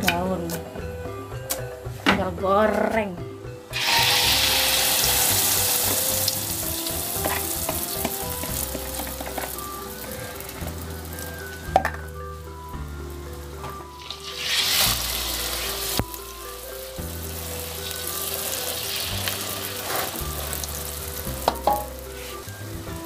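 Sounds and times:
background music: 0.0 - 23.0
batter sizzling in hot oil: 3.7 - 11.7, 13.4 - 23.0
metal spatula knocking on wok: 21.4 - 22.0.

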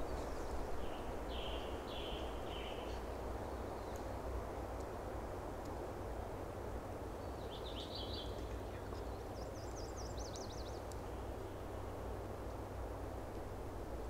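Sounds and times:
songbird singing: 0.0 - 4.4, 7.1 - 12.0.

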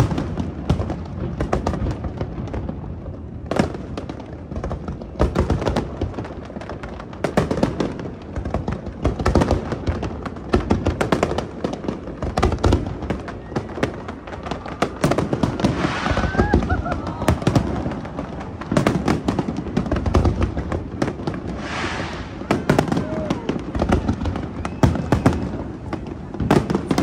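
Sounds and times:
fireworks bursting: 0.0 - 27.0.

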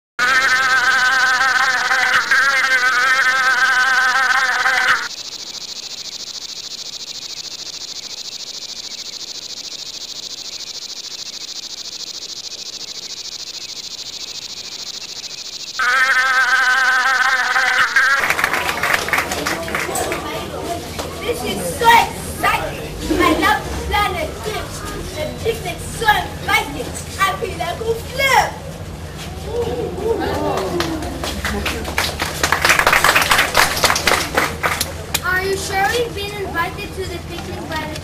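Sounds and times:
high hiss of insects: 0.2 - 19.8
insect buzzing drone: 0.2 - 20.5.

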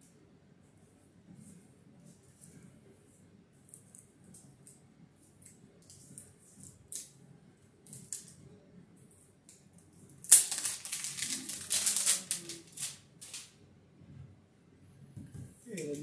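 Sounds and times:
crinkling plastic film: 10.2 - 13.6.

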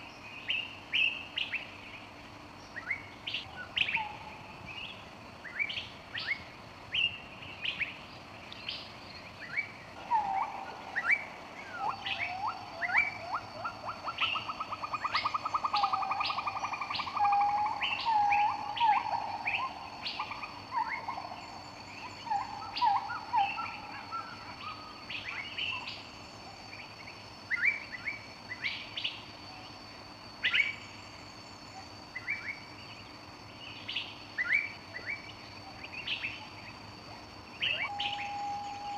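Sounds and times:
birds chirping: 0.0 - 29.8, 30.4 - 38.9
bird trill: 8.7 - 26.2, 37.5 - 38.9.

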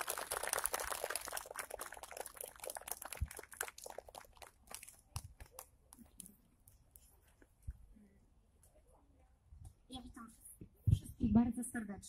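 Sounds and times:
crowd applauding: 0.0 - 5.7.

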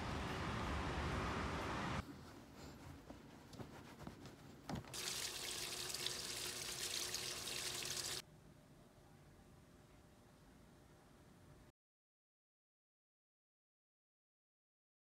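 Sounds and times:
water pouring into washing machine: 4.9 - 8.2.

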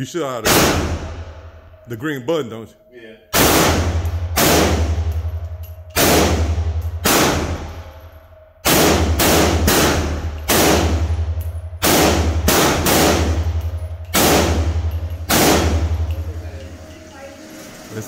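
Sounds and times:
steady low hum: 0.0 - 18.0
gunshots echoing indoors: 0.4 - 1.8, 3.3 - 16.9.

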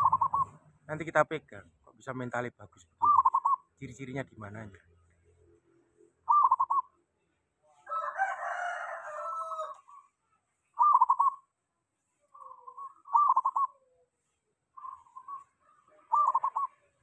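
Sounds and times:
dove rolling coo notes: 0.0 - 0.6, 3.0 - 3.6, 6.3 - 6.9, 10.8 - 11.4, 12.4 - 14.1, 14.8 - 17.0
rooster crowing: 7.7 - 10.0, 15.6 - 17.0.

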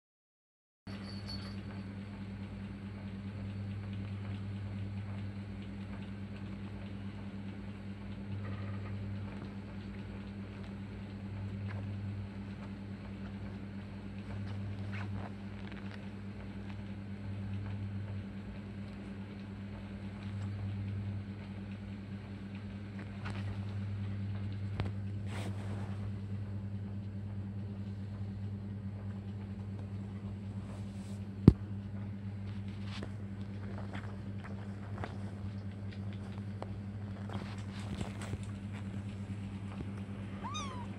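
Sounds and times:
low electrical hum: 0.9 - 40.9
paws scuffling on fabric: 24.8 - 26.2, 30.3 - 31.4, 32.4 - 40.9.

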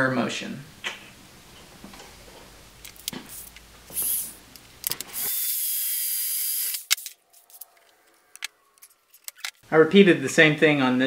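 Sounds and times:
cordless drill drilling metal: 3.9 - 4.4, 5.1 - 6.9.

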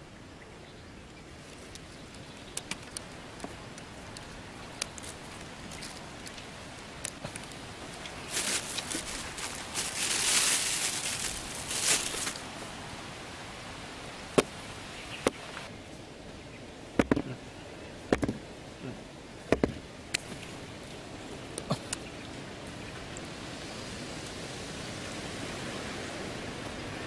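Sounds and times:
plastic and bamboo clicks: 1.5 - 7.6
hands scraping sandy soil: 7.1 - 12.5.

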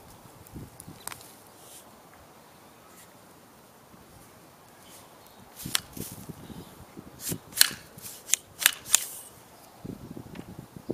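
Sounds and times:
rustling of weed and soil: 0.0 - 10.2
sharp metallic clicks: 7.6 - 9.1.

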